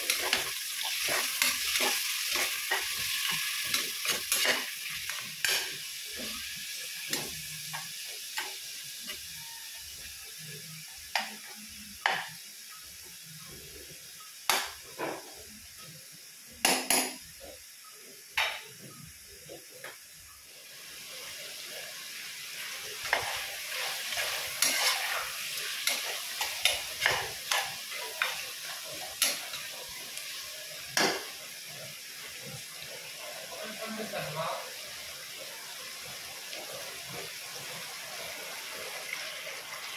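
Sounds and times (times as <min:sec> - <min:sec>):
food sizzling in pot: 0:00.0 - 0:39.9
spatula knocking and scraping pot: 0:24.1 - 0:28.4.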